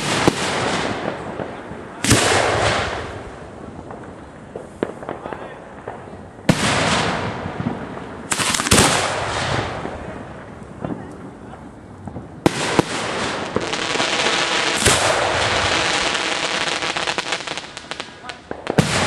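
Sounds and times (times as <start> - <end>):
firework bangs: 0.0 - 19.0
small firework cracks: 0.0 - 19.0.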